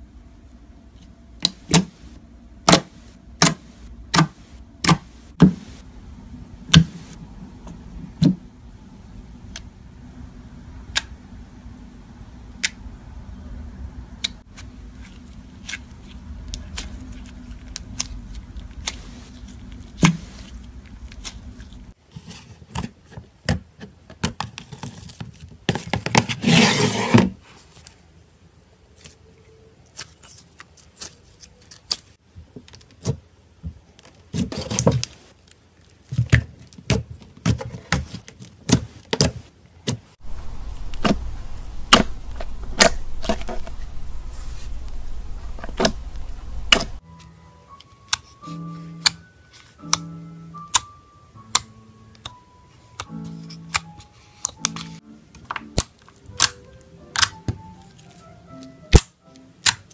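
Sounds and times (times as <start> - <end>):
slime clicking and popping: 55.7 - 57.4.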